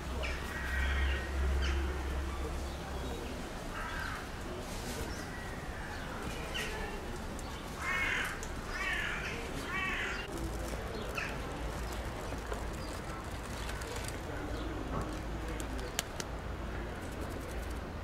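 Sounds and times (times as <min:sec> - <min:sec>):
crow cawing: 0:00.2 - 0:01.7, 0:03.8 - 0:04.2, 0:07.8 - 0:10.2.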